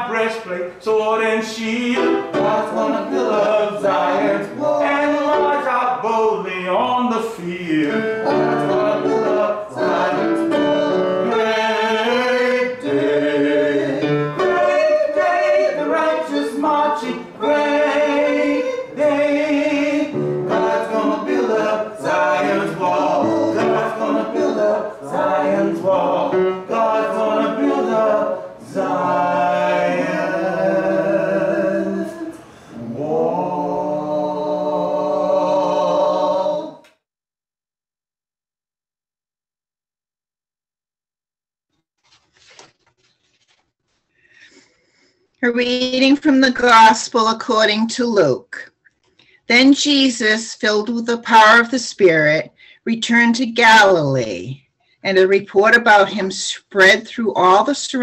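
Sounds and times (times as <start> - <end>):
small choir singing anthem: 0.0 - 36.9.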